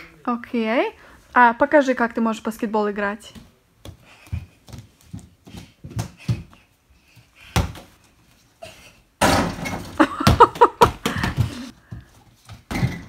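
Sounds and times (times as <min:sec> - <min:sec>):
ball crashing into backboard: 0:09.2 - 0:10.4
backboard and doors rattling: 0:09.2 - 0:11.3, 0:12.7 - 0:13.0
ball thumping on wooden floor: 0:09.2 - 0:11.6, 0:12.5 - 0:13.0.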